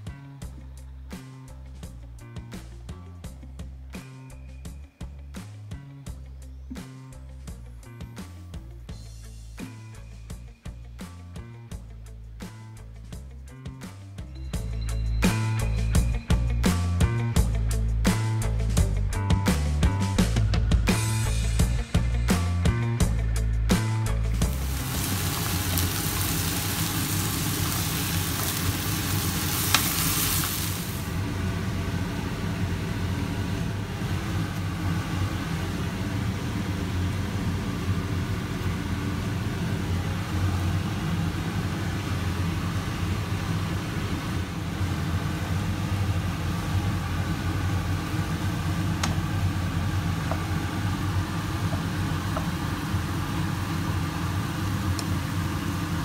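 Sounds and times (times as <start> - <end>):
meat sizzling in oil: 24.4 - 31.2.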